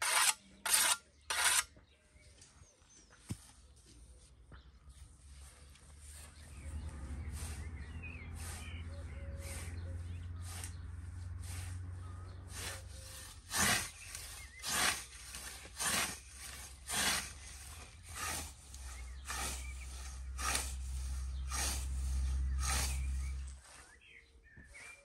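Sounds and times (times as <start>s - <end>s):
low steady rumble: 5.1s - 23.6s
scythe swishing through grass: 8.3s - 9.7s, 10.4s - 24.0s.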